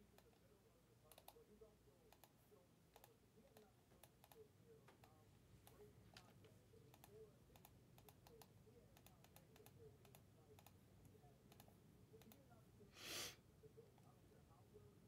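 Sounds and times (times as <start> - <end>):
low background hum: 0.0 - 15.0
keyboard and mouse clicks: 1.1 - 1.4, 2.1 - 6.3, 6.9 - 10.8, 11.5 - 12.4.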